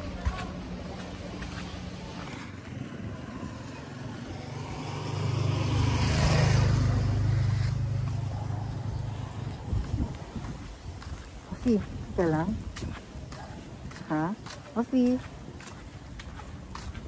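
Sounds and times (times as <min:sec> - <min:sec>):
vehicle passing by: 0:01.2 - 0:10.6.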